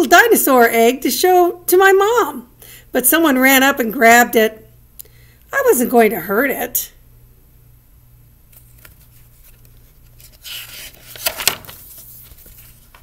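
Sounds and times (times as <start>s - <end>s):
paper page turning: 8.5s - 13.0s.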